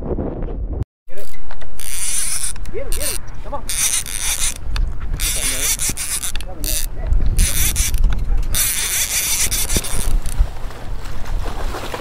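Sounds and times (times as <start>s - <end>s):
fishing reel buzzing: 1.1s - 10.4s.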